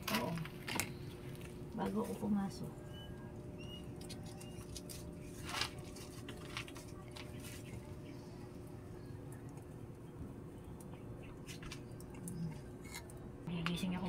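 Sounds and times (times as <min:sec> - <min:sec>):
wood fire crackling: 0:00.0 - 0:14.0
faint high chirps: 0:02.8 - 0:04.9.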